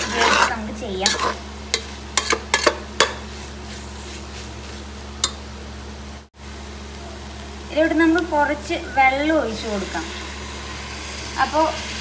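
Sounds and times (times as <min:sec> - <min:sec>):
spoon scraping metal pot: 0:00.0 - 0:03.2
faint sizzle: 0:00.0 - 0:12.0.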